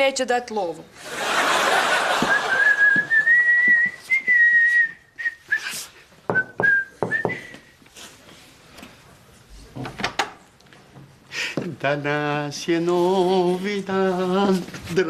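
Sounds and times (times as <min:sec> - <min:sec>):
man whistling: 0:02.3 - 0:07.8.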